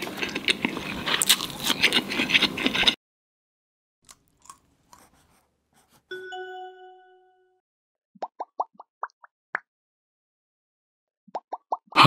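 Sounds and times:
chewing fried chicken: 0.0s - 3.0s, 4.1s - 5.3s
ringing chime: 6.1s - 7.6s.

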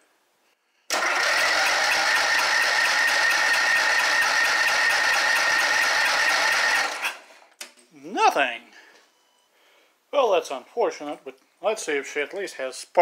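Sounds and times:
engine cranking without firing: 0.9s - 7.2s.

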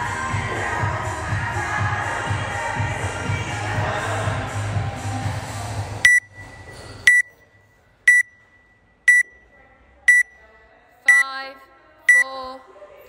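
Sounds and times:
interval timer beeps: 6.0s - 7.5s, 8.1s - 9.4s, 10.1s - 10.3s, 11.1s - 11.3s, 12.1s - 12.4s.

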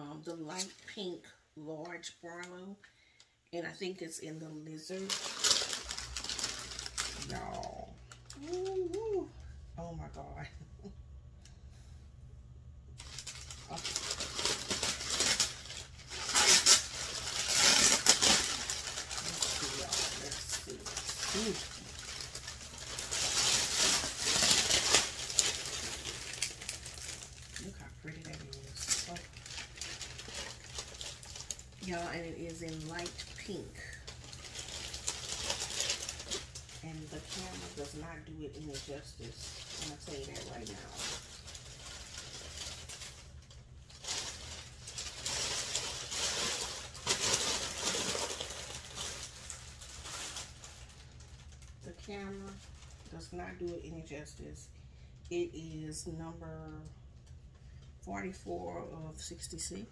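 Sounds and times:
plastic bag crinkling: 4.8s - 10.4s, 13.0s - 53.7s.

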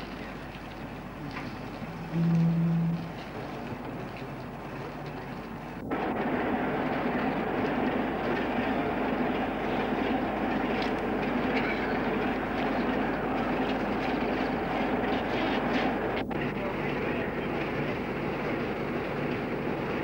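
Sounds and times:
quiet hiss: 0.0s - 5.9s
mechanical rumble with low hum: 0.0s - 20.0s.

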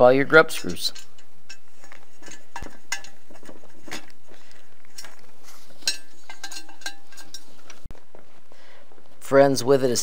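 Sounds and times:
metal tools clicking on metal frame: 5.0s - 7.9s.

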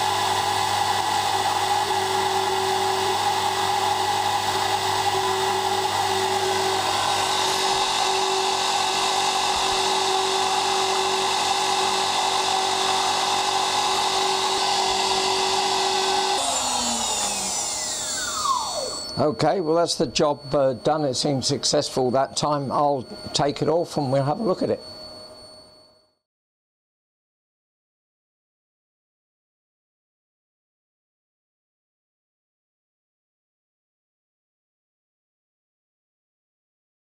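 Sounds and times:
spindle winding down: 0.0s - 24.9s
engraving spindle cutting metal: 1.0s - 23.3s.

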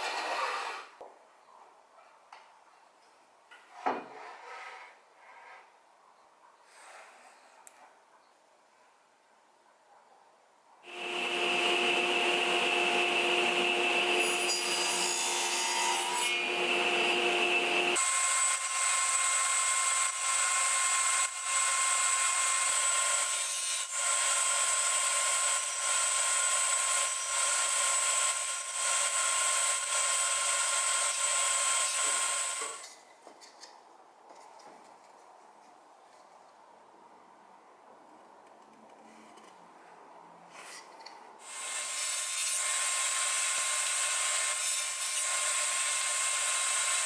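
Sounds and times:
table saw cutting wood: 10.9s - 32.9s, 41.4s - 47.0s.

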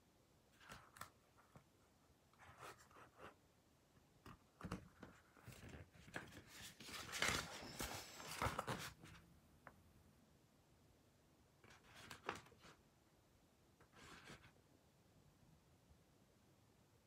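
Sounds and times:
paper pages rustling: 0.6s - 1.7s, 4.3s - 9.2s, 11.7s - 12.8s.

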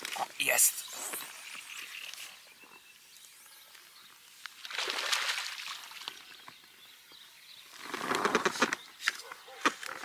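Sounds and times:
fish splashing in water: 4.6s - 6.3s.

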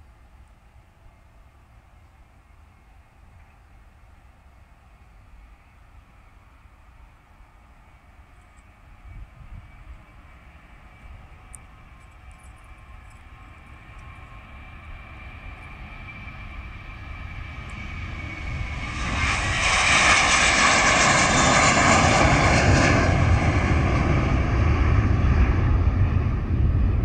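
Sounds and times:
jet engines at takeoff thrust: 0.0s - 27.0s.

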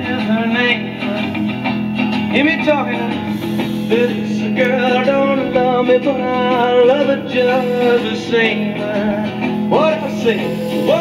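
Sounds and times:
song with guitar and singing: 0.0s - 11.0s.

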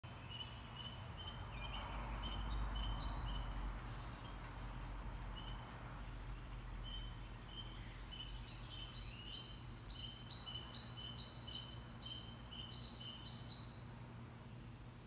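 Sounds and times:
bird chirping: 0.0s - 14.8s.

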